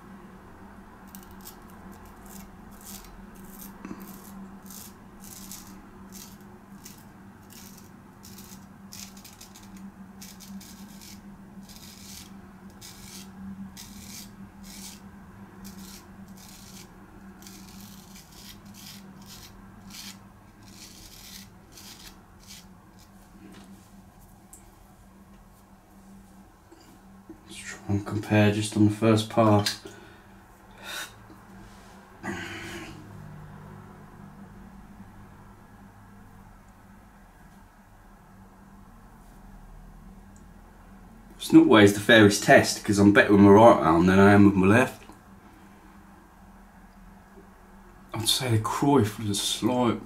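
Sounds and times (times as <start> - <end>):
faint hum: 0.0 - 50.0
razor scraping stubble: 1.0 - 23.7.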